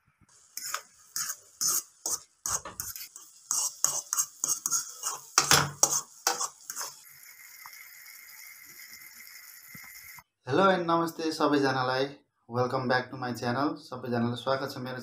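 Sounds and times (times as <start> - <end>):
steady hiss: 0.3 - 10.2
fork scraping a wok: 0.4 - 7.1.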